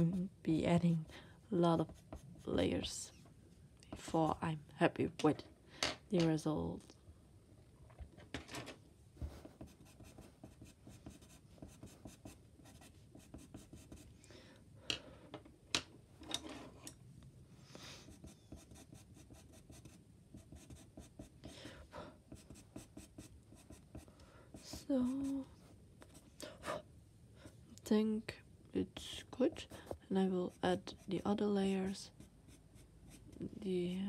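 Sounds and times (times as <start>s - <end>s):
pencil scratching on paper: 1.7s - 3.0s, 9.4s - 14.1s, 18.0s - 21.4s, 22.3s - 25.4s, 29.5s - 33.6s.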